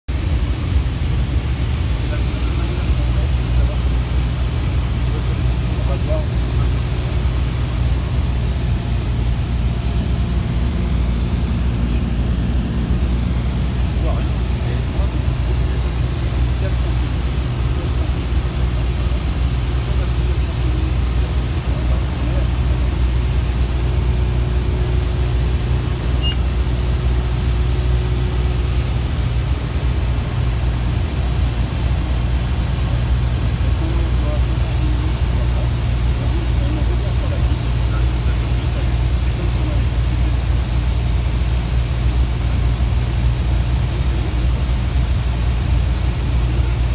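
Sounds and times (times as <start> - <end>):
propeller plane engine droning: 0.1 - 46.9.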